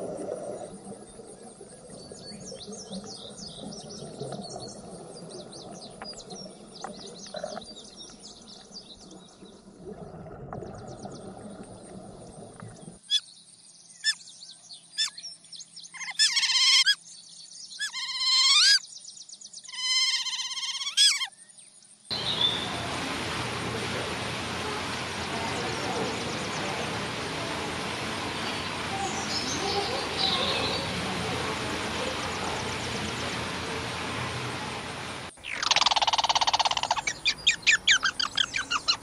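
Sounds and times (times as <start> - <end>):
whistling animal calls: 35.4 - 39.0.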